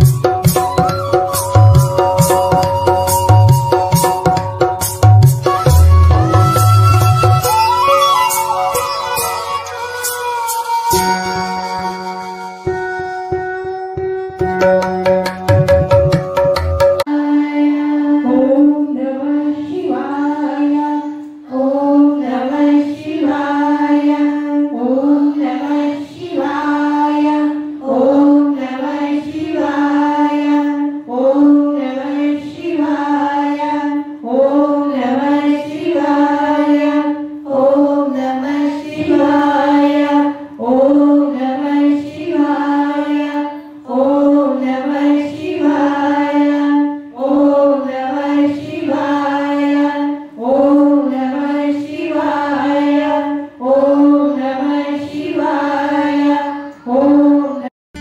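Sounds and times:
devotional chanting: 0:15.6 - 0:57.7.

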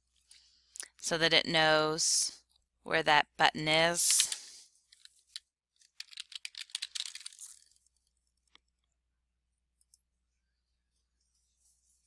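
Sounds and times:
keyboard typing: 0:06.0 - 0:07.6.

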